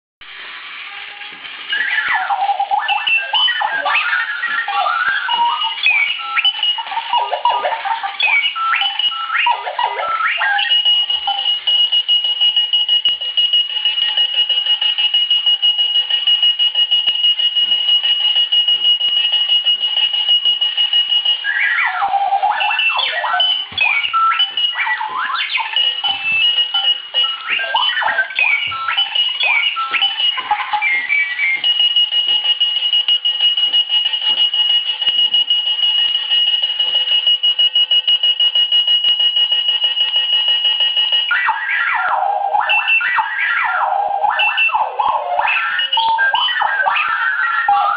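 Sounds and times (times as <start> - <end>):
long steady high tone: 0.6 - 37.1
alarm clock electronic chirps: 0.6 - 47.9.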